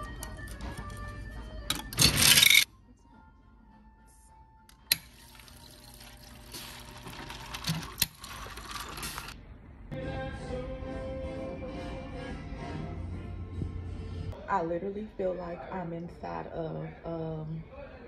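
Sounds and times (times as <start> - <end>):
background music: 0.0 - 8.8, 9.9 - 18.0
ice clattering into cup: 5.0 - 9.4.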